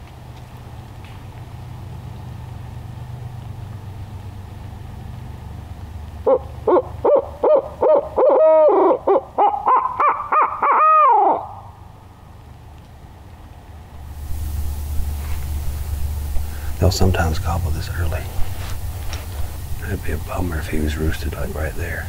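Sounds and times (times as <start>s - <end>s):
low background rumble: 0.0s - 22.0s
owl call hoots: 6.3s - 11.8s.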